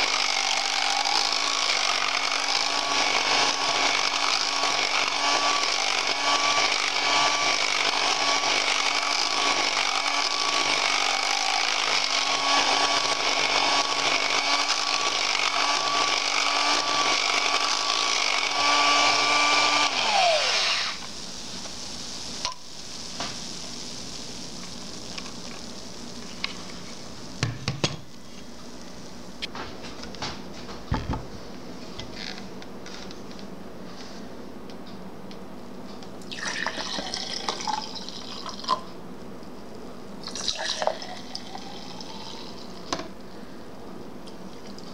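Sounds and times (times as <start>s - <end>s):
electric mixer whining: 0.0s - 27.5s.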